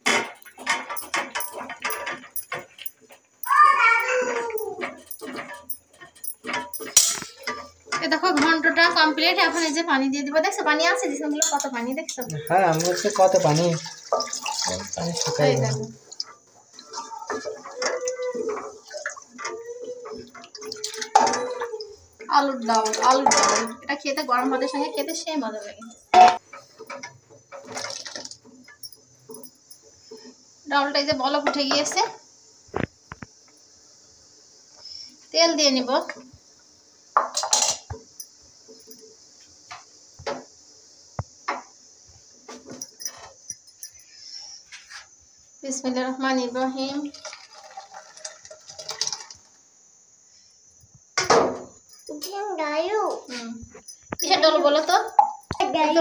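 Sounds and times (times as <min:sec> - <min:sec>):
spatula clattering: 0:00.0 - 0:09.8, 0:11.0 - 0:29.8.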